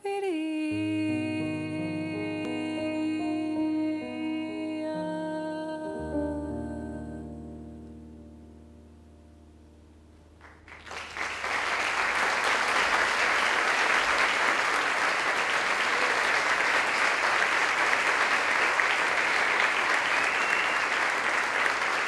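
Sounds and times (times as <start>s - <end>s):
piano chord: 0.8s - 10.7s
audience applause: 10.4s - 22.0s.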